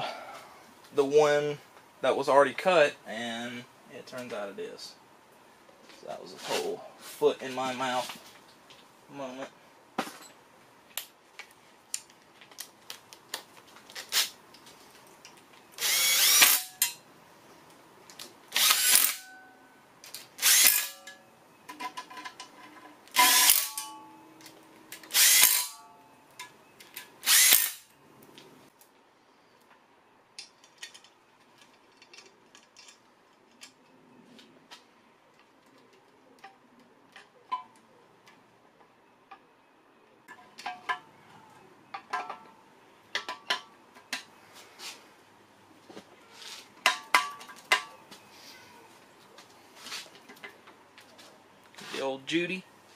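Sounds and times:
power driver spinning bolts: 15.8s - 16.9s, 20.4s - 21.2s, 23.1s - 24.0s, 25.0s - 25.8s.

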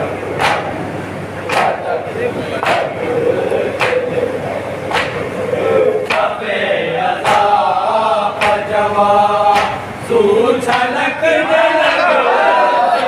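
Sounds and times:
chest-beating slaps: 0.4s - 0.8s, 1.5s - 1.8s, 3.8s - 4.1s, 4.8s - 5.3s, 6.0s - 6.3s, 7.2s - 7.5s, 8.4s - 8.7s, 9.5s - 9.8s
men chanting a lament: 1.4s - 13.0s.

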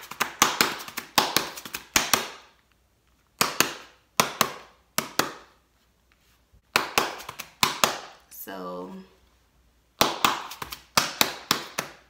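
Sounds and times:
hand slapping cardboard box lid: 0.0s - 2.4s, 3.4s - 5.5s, 6.7s - 8.1s.

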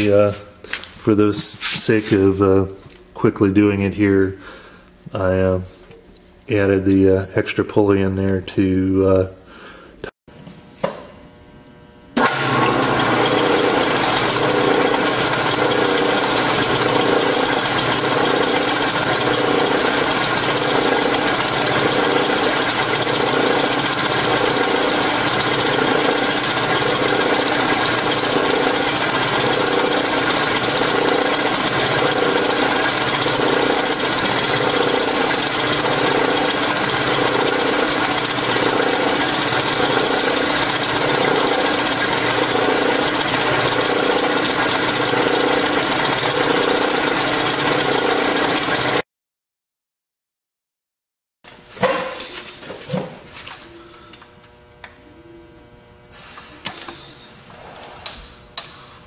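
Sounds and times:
milling machine cutting steel: 12.2s - 49.0s.

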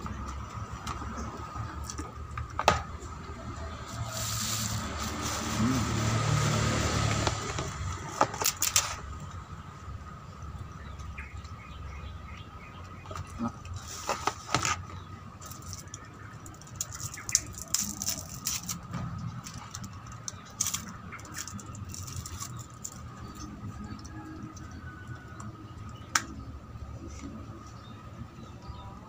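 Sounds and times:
straw wrapper tearing: 4.0s - 6.4s, 15.4s - 23.4s
plastic packaging crinkling: 15.4s - 18.9s.

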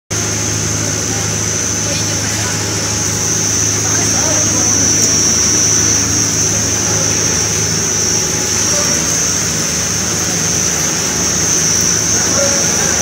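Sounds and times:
high machine whine: 0.1s - 13.0s
machine hum: 0.1s - 13.0s.

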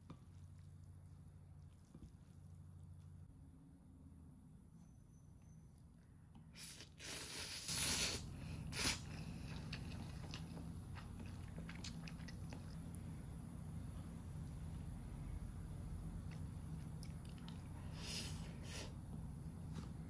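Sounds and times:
person slurping noodles: 6.6s - 9.1s
person chewing: 6.6s - 13.0s, 16.2s - 18.0s.

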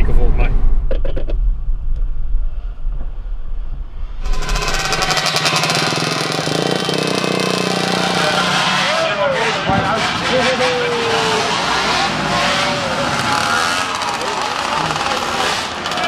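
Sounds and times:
moped engines rattling drone: 4.2s - 16.0s.

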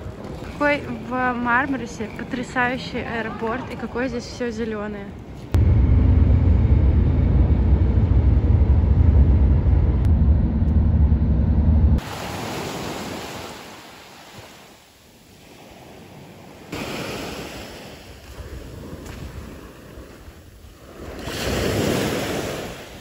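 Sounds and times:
vehicle rumble from inside: 5.6s - 12.0s
waves washing onto pebbles: 12.0s - 20.2s, 20.8s - 23.0s.

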